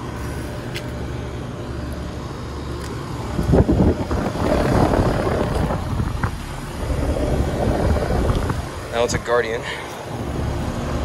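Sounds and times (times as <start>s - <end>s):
air conditioning units humming: 0.0s - 11.0s
wind buffeting microphone: 3.3s - 9.6s.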